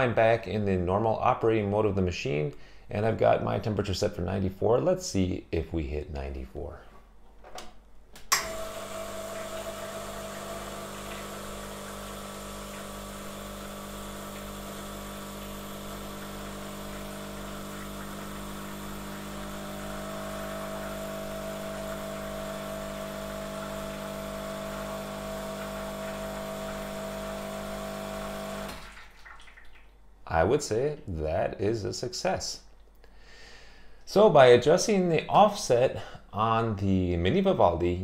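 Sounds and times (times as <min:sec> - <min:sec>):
pump switch click: 0:08.2 - 0:08.7
espresso machine pump humming: 0:08.4 - 0:28.8.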